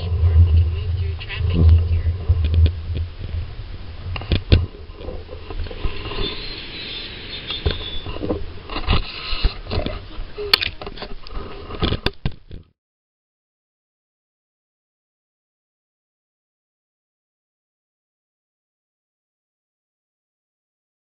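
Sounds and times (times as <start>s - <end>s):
car road and engine rumble: 0.0s - 8.9s.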